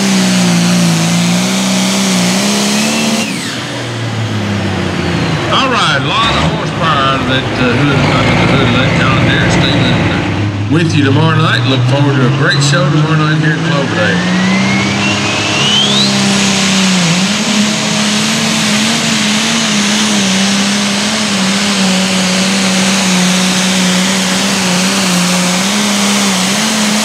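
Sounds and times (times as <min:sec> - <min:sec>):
diesel engine running under load: 0:00.0 - 0:27.0
high turbo whistle: 0:02.2 - 0:04.3, 0:14.1 - 0:27.0.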